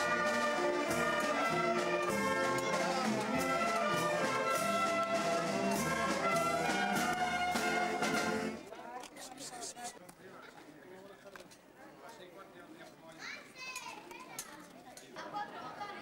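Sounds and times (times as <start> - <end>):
brass melody: 0.0 - 8.6
marching drum beats: 0.0 - 8.6.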